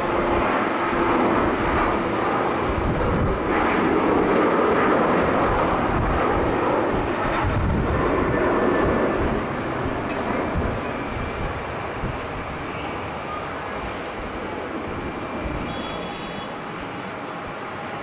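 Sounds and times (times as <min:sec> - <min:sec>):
wind buffeting microphone: 0:00.0 - 0:12.7
jet engines roaring: 0:00.0 - 0:18.0.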